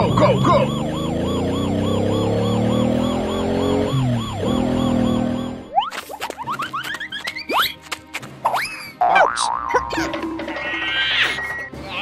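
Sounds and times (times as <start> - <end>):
fast warbling siren: 0.0 - 6.0.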